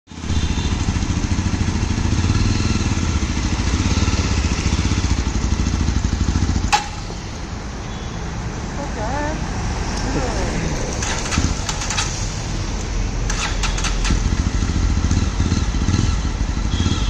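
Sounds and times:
motorcycle engine running at low revs: 0:00.1 - 0:07.4, 0:13.3 - 0:17.0
sharp click: 0:06.7 - 0:07.2.

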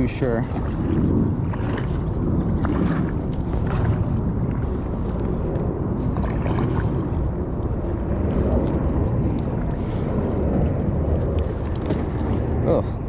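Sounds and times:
kayak paddle splashing: 0:00.0 - 0:10.1
steady low rumble: 0:00.0 - 0:13.0.

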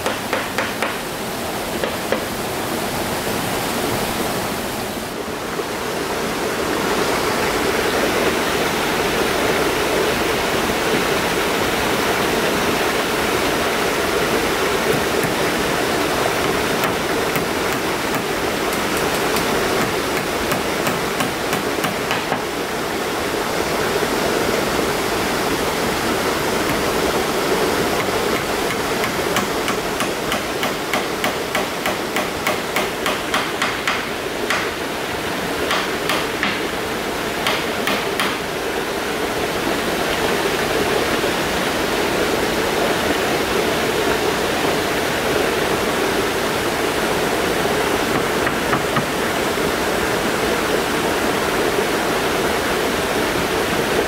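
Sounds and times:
hammer striking nails into wood: 0:00.0 - 0:01.0, 0:01.8 - 0:02.3, 0:14.9 - 0:15.5, 0:16.4 - 0:22.5, 0:28.0 - 0:34.7, 0:35.7 - 0:36.6, 0:37.4 - 0:38.4
running water: 0:00.0 - 0:54.0.

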